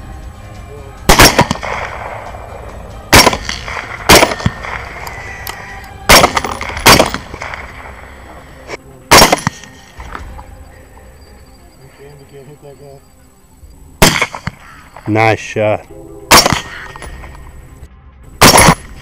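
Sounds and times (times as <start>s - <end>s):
suppressed rifle shots: 1.1s - 2.3s, 3.1s - 5.2s, 6.1s - 8.1s, 9.1s - 10.2s, 14.0s - 15.1s, 16.3s - 17.4s, 18.4s - 19.0s.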